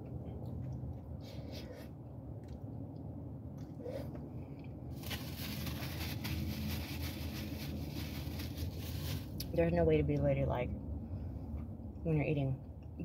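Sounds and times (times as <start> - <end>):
quiet chewing: 0.0 - 4.8
low steady hum: 0.0 - 13.0
paper napkin crinkling: 5.0 - 9.4.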